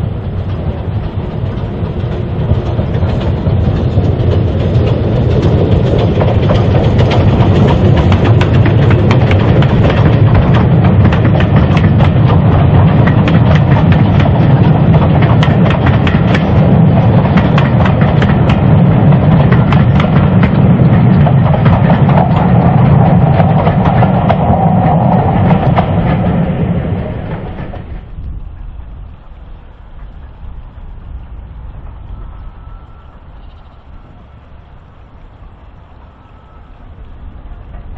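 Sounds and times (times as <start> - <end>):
wheels clicking over rail joints: 0.0 - 28.3
steam train passing: 0.0 - 37.9.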